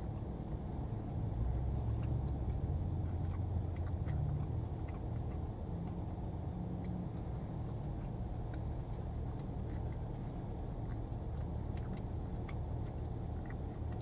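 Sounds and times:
low hum inside car: 0.0s - 14.0s
person chewing food: 0.2s - 14.0s
wet mouth clicks: 6.8s - 14.0s.

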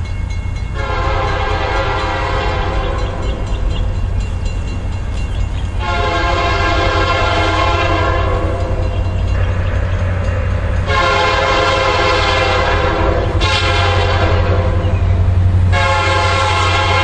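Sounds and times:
train low rumble: 0.0s - 17.0s
train air horn blasts: 0.8s - 3.7s, 5.8s - 15.0s, 15.6s - 17.0s.

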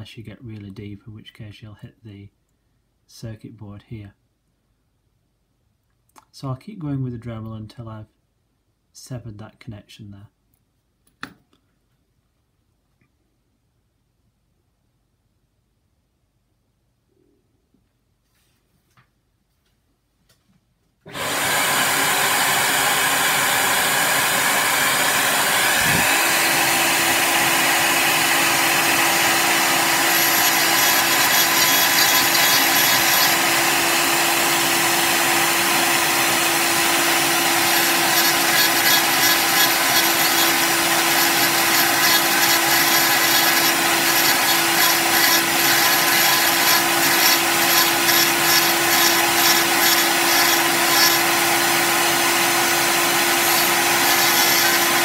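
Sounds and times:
rotary tool grinding resin: 21.1s - 55.0s
rotary tool whine: 21.1s - 55.0s
vacuum cleaner running: 21.1s - 55.0s.

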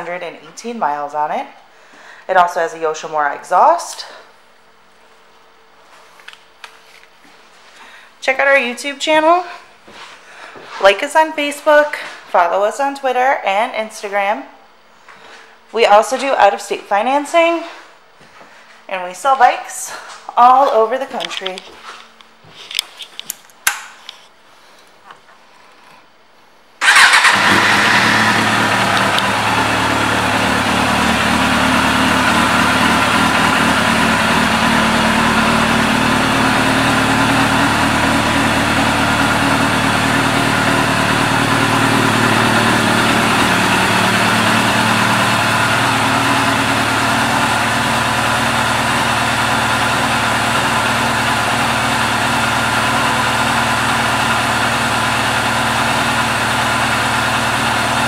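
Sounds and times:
motorcycle engine idling: 26.8s - 58.0s.

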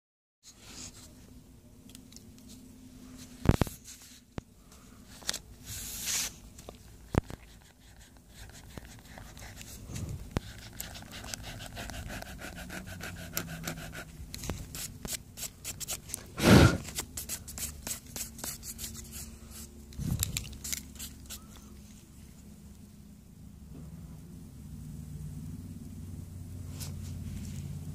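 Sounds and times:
pencil scratching on paper: 7.1s - 9.8s, 10.4s - 14.1s.

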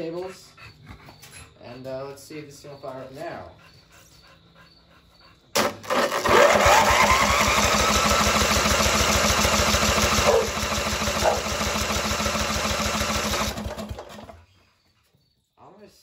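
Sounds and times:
starter cranking engine: 5.6s - 14.4s.

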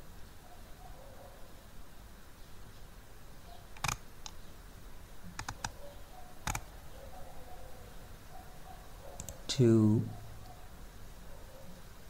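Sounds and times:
faint background hiss: 0.0s - 12.0s
computer mouse clicks: 3.8s - 4.4s, 5.3s - 5.8s, 6.4s - 6.7s, 9.2s - 9.4s.

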